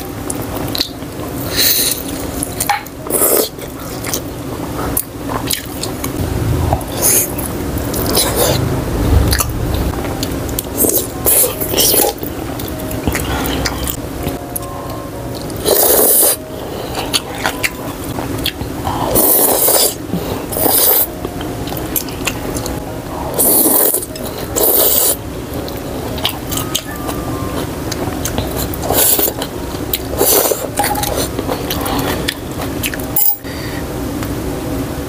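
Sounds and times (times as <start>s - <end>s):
chewing: 23.4s - 33.2s.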